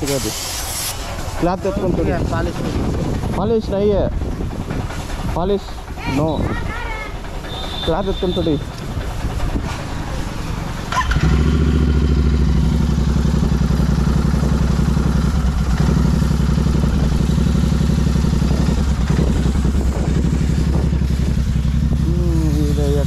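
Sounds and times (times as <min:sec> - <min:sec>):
motorcycle engine idling: 0:01.0 - 0:23.0.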